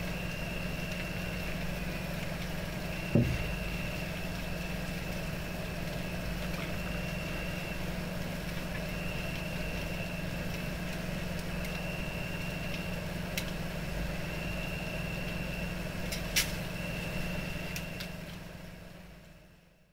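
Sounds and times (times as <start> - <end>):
low mechanical hum: 0.0 - 19.9
high whine: 3.0 - 4.2.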